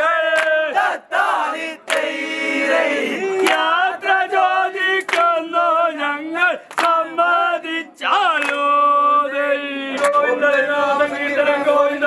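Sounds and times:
men chant-singing in unison: 0:00.0 - 0:12.0
hands clapping: 0:00.2 - 0:00.8, 0:01.8 - 0:02.2, 0:03.2 - 0:03.9, 0:04.8 - 0:05.5, 0:06.6 - 0:07.1, 0:08.3 - 0:08.8, 0:10.0 - 0:10.2.

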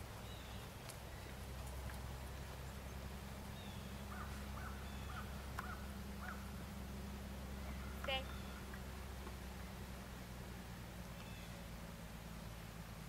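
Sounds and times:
low background hum: 0:00.0 - 0:13.0
faint bird calls: 0:02.3 - 0:09.9, 0:11.1 - 0:12.0.

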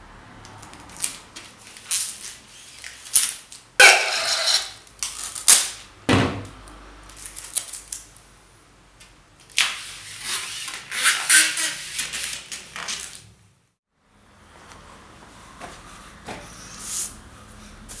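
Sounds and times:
tape rasping and tearing: 0:00.6 - 0:05.8, 0:09.5 - 0:13.3
tape rubbed against mesh: 0:09.8 - 0:12.6.

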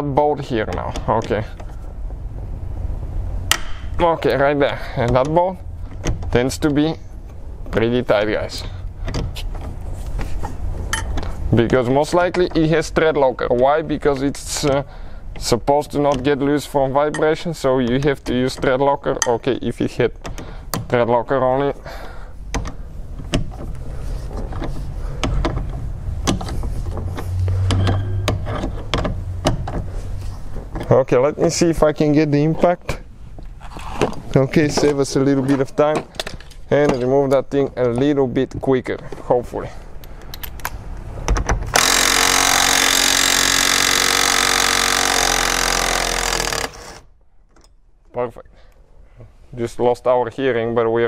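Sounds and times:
impact wrench hammering: 0:03.5 - 0:04.0, 0:41.7 - 0:47.0
ratchet clicking: 0:41.7 - 0:47.1.

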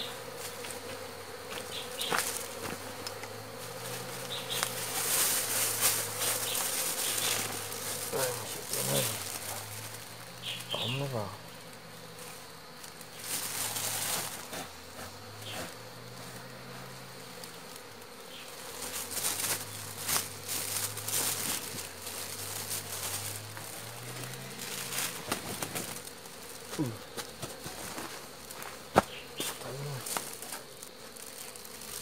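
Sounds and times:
bees buzzing: 0:00.0 - 0:32.0
sack and paper rustling: 0:03.6 - 0:11.2, 0:12.9 - 0:14.7, 0:18.5 - 0:32.0.

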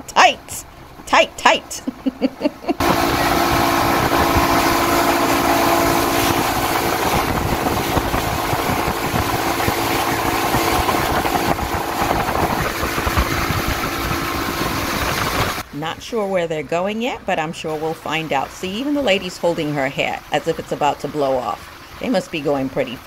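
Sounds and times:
water rushing along hull: 0:00.0 - 0:01.9, 0:02.7 - 0:23.0
speedboat engine droning: 0:00.0 - 0:23.0
wind buffeting microphone: 0:02.8 - 0:15.6.

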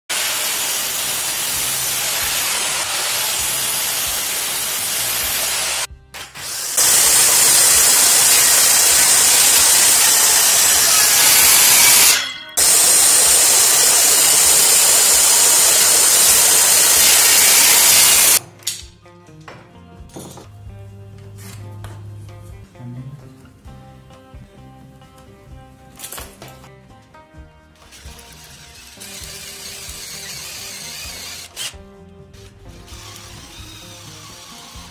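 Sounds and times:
circular saw cutting panel: 0:00.1 - 0:18.4
mitre saw cutting wood: 0:00.1 - 0:18.4, 0:27.9 - 0:31.8, 0:32.7 - 0:34.9.

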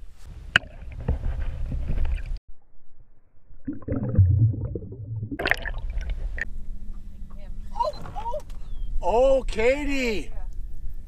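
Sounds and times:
underwater gurgling and sloshing: 0:03.4 - 0:07.1.

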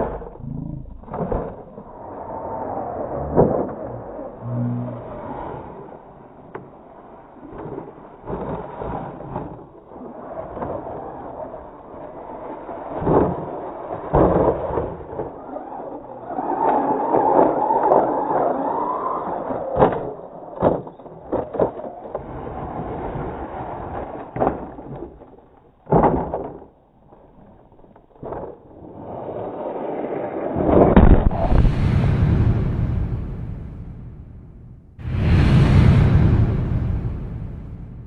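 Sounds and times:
toy trucks knocking and tumbling: 0:13.0 - 0:22.7, 0:23.8 - 0:28.9
rising whoosh: 0:31.0 - 0:38.0
outro music: 0:31.4 - 0:38.0.

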